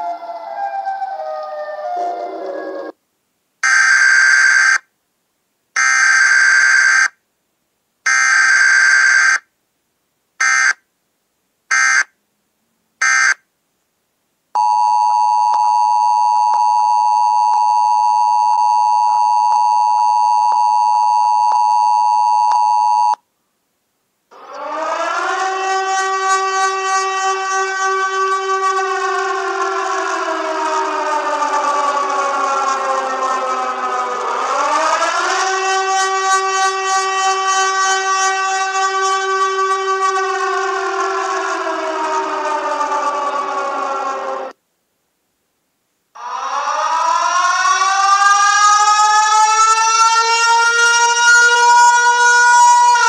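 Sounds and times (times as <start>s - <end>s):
siren tone falling in pitch: 0.0s - 3.0s, 24.4s - 44.6s, 46.2s - 53.0s
siren winding up: 0.0s - 3.0s, 24.4s - 44.6s, 46.2s - 53.0s
alarm blasts: 3.6s - 4.8s, 10.4s - 10.8s, 11.7s - 12.1s, 13.0s - 13.4s, 24.3s - 44.6s, 46.2s - 53.0s.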